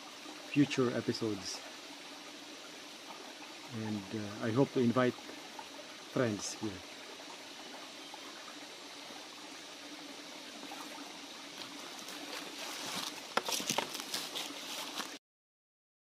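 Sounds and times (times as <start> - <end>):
stream trickling over rocks: 0.0 - 15.2
sharp crackles and knocks: 11.6 - 15.2.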